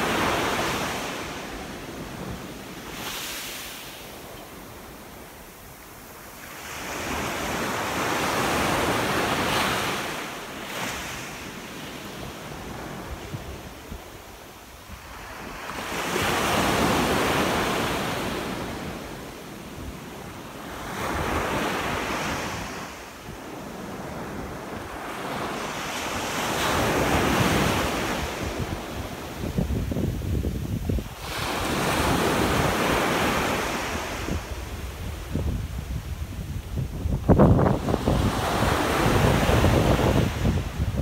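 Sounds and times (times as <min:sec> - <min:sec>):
small waves breaking on shore: 0:00.0 - 0:36.0
wind buffeting microphone: 0:26.8 - 0:32.9, 0:33.9 - 0:41.0.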